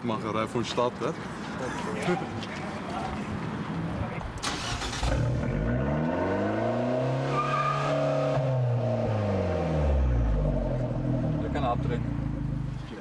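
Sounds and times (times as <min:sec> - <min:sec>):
car engine revving: 0:04.4 - 0:13.0.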